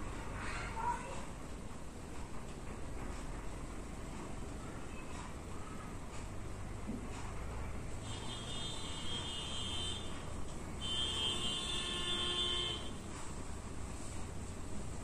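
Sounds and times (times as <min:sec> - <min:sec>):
high-pitched buzzer tones: 0:08.1 - 0:10.1, 0:10.8 - 0:13.0.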